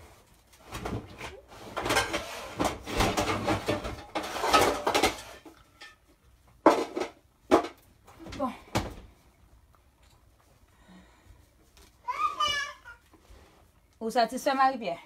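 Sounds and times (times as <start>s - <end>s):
dishes and utensils clattering: 0.8s - 7.8s.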